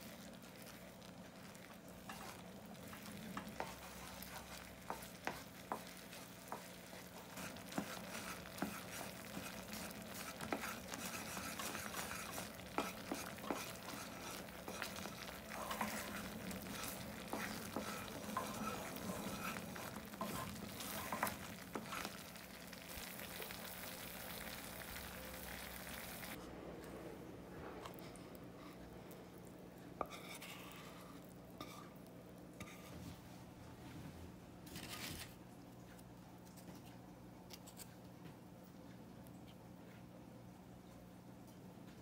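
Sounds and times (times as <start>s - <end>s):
wooden spoon scraping a saucepan: 0.0s - 24.8s, 30.0s - 32.0s, 32.6s - 33.3s
sauce sizzling and bubbling: 0.0s - 26.4s.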